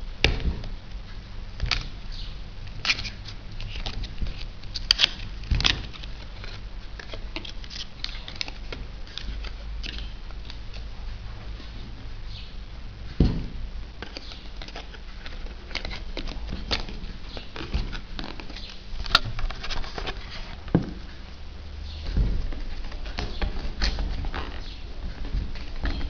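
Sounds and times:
cardboard box rustling and scraping: 14.3 - 21.1.

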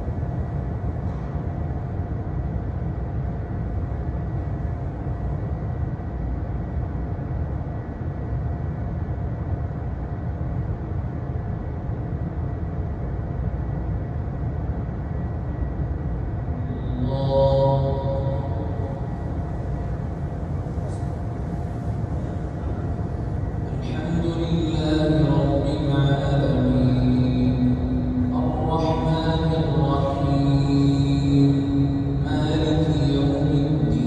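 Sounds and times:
electric fan airflow: 0.0 - 34.0
faint steady hum: 0.0 - 34.0
man reciting: 16.8 - 19.1, 23.7 - 34.0.

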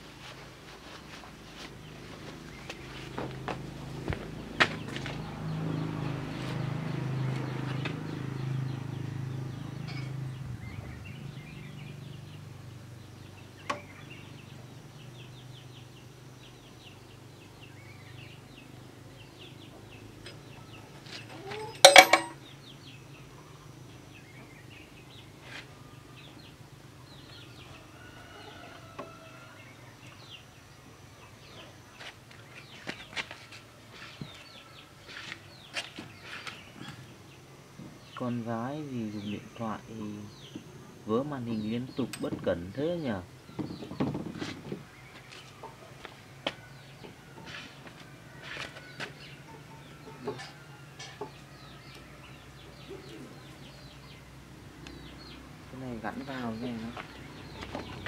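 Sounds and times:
birds chirping: 0.0 - 58.0
sharp metallic knock: 21.8 - 22.4.

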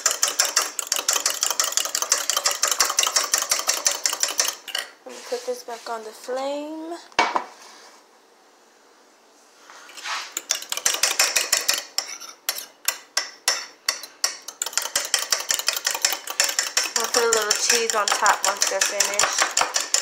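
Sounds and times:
fork beating eggs in mug: 0.0 - 4.9, 10.0 - 20.0.

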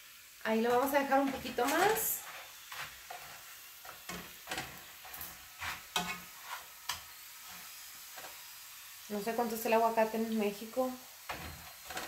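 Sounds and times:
tortillas sizzling in frying pan: 0.0 - 12.0
metal tongs tapping pan: 0.7 - 2.1.

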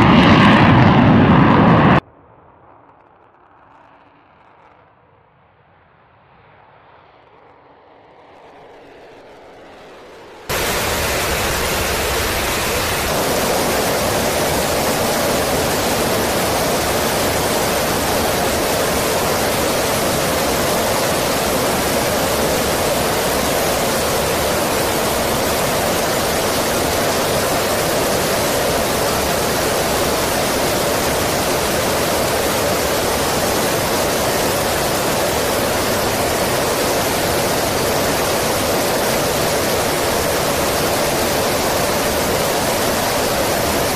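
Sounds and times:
jet engines and air rushing: 0.0 - 43.9.

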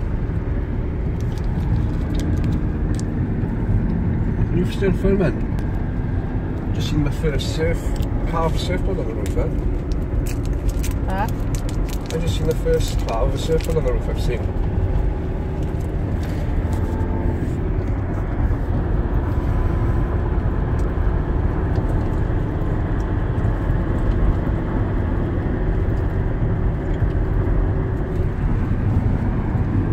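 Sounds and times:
road and engine noise in cabin: 0.0 - 29.9.

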